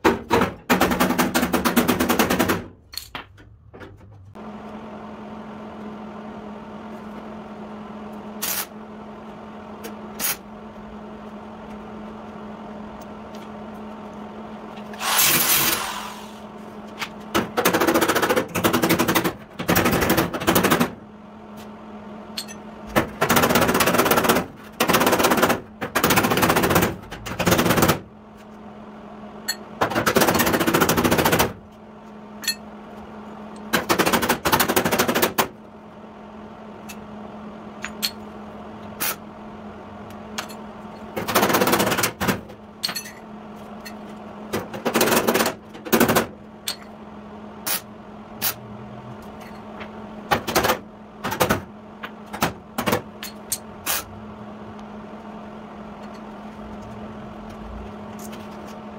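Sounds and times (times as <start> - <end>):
steady hum: 0.8 - 17.7.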